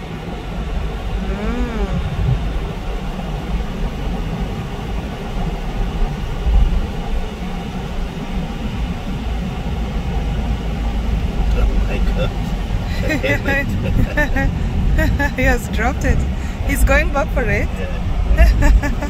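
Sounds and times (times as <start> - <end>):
car road and engine rumble: 0.0 - 19.0.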